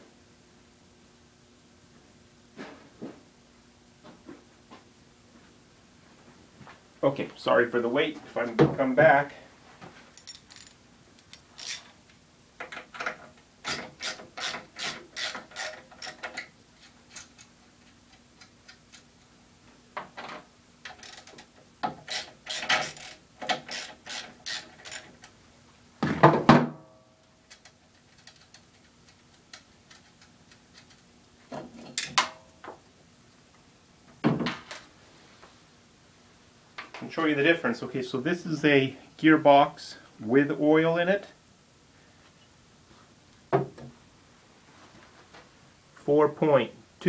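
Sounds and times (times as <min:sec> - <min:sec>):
ratchet wrench clicking: 0:10.2 - 0:11.9, 0:13.7 - 0:16.4, 0:20.9 - 0:25.1.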